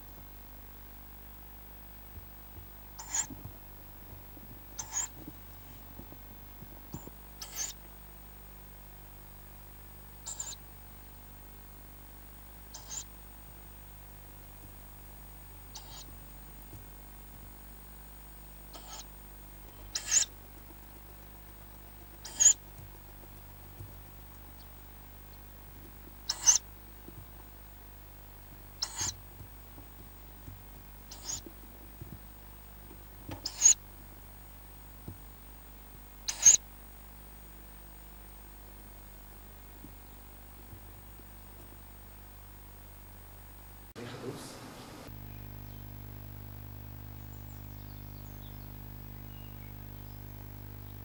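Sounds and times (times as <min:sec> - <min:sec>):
faint rustling and knocking: 0:02.1 - 0:08.0, 0:16.0 - 0:36.1
owl chicks hissing calls: 0:03.0 - 0:03.5, 0:04.7 - 0:05.3, 0:07.0 - 0:07.9, 0:10.2 - 0:10.7, 0:12.7 - 0:13.2, 0:15.7 - 0:16.2, 0:18.6 - 0:20.6, 0:22.0 - 0:22.8, 0:26.2 - 0:26.8, 0:28.7 - 0:29.3, 0:31.0 - 0:31.6, 0:33.3 - 0:33.8, 0:36.2 - 0:36.7.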